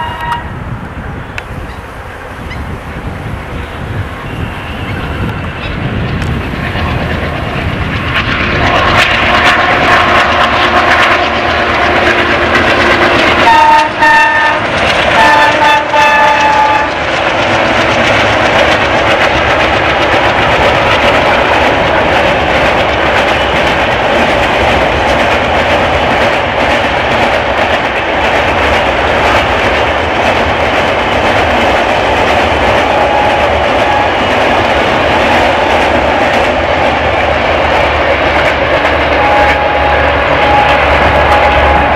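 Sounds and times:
train horn blasts: 0.0s - 0.6s, 8.6s - 17.0s, 32.8s - 34.4s, 39.0s - 41.9s
diesel locomotive engine accelerating: 0.0s - 41.9s
wheel and rail clatter: 0.0s - 41.9s.

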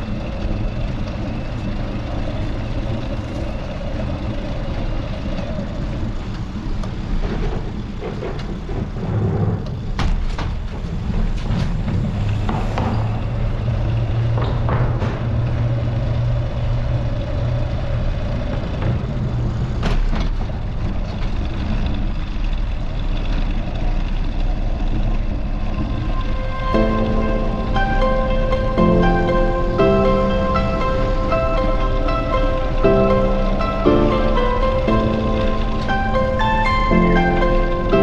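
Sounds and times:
steady low rumble: 0.0s - 38.0s
passing car and truck engines: 11.2s - 38.0s.

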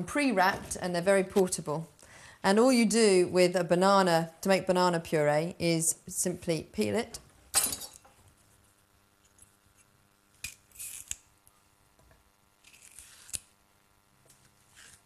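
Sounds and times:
banana peel tearing: 9.8s - 11.3s, 12.6s - 13.6s, 14.3s - 15.0s.

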